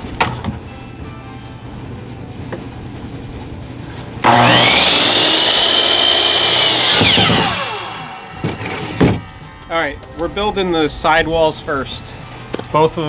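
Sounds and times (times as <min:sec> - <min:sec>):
miter saw motor whining: 0:04.2 - 0:09.4
saw blade cutting wood: 0:04.2 - 0:09.4.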